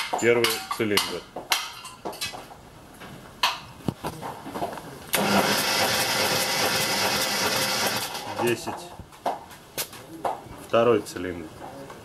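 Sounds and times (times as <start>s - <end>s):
engine starter cranking: 5.2s - 8.4s.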